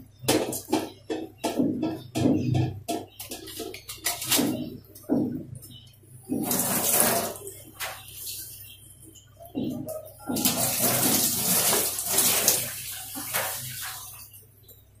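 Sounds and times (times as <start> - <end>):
water running and splashing: 6.3 - 8.6, 10.3 - 14.4.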